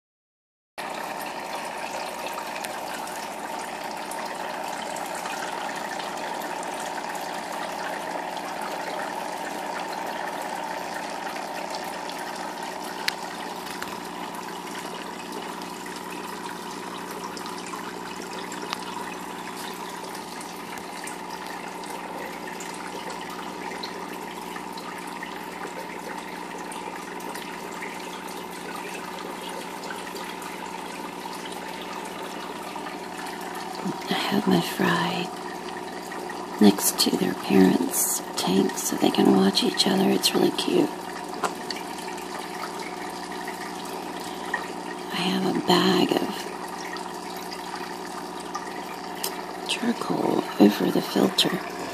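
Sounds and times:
running water: 0:00.8 - 0:51.9
low steady hum: 0:27.0 - 0:51.9.

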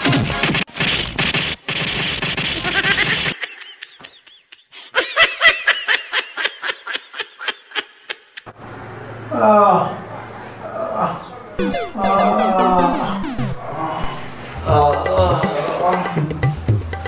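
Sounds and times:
laughter bursts: 0:02.6 - 0:08.4
dense noise: 0:11.6 - 0:14.7.

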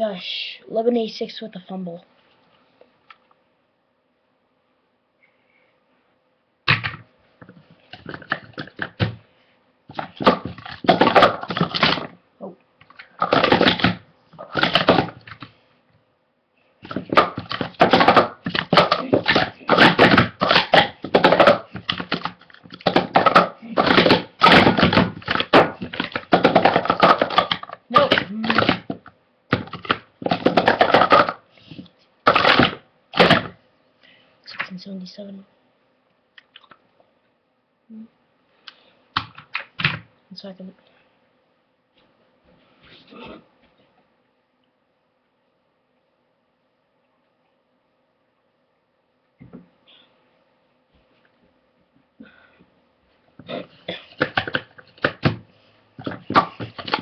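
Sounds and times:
plastic cups clacking: 0:06.7 - 0:09.2, 0:09.9 - 0:12.2, 0:12.8 - 0:15.5, 0:16.8 - 0:33.6, 0:53.4 - 0:55.4, 0:56.0 - 0:57.0.

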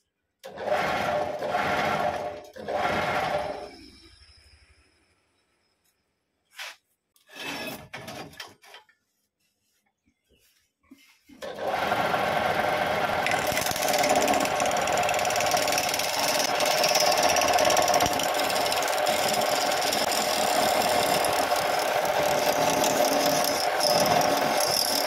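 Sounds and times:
wood lathe humming: 0:11.5 - 0:25.0
chisel scraping spinning wood: 0:12.0 - 0:25.0.

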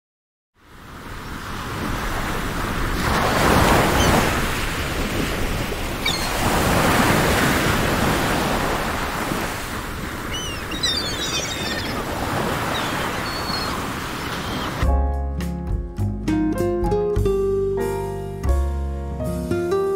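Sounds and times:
sea waves washing onto shore: 0:00.6 - 0:14.8.

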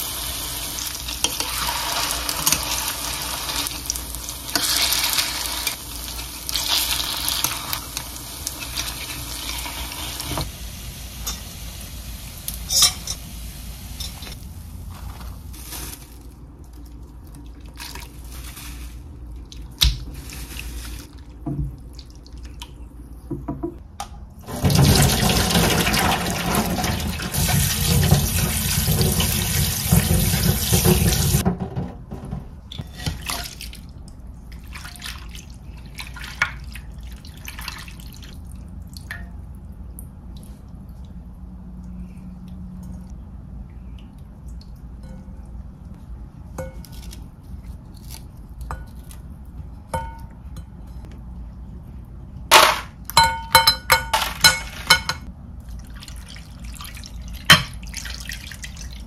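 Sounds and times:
kitchen utensils clinking: 0:11.2 - 0:11.5, 0:12.6 - 0:13.2, 0:14.0 - 0:14.4, 0:52.5 - 0:55.3
tap running into sink: 0:26.6 - 0:32.5.

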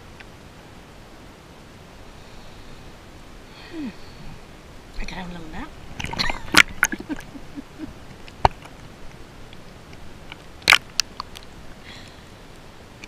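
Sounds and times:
faint hiss: 0:00.0 - 0:13.0
water splashing against camera: 0:05.9 - 0:11.6.

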